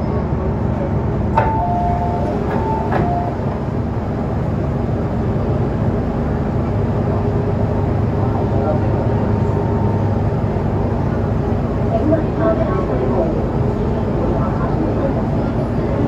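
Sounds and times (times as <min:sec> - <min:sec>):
low rumble of standing train: 0:00.0 - 0:16.0
train doors opening: 0:01.2 - 0:04.5.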